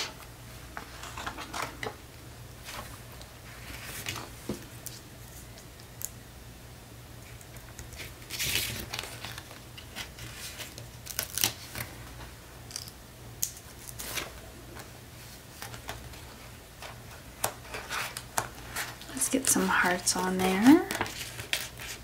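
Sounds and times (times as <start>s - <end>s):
paper rustle: 2.6s - 5.4s, 7.8s - 12.2s, 13.8s - 22.0s.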